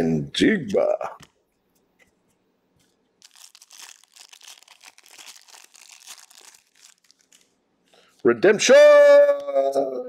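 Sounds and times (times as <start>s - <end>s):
foil wrapper crinkling and tearing: 3.2s - 7.6s.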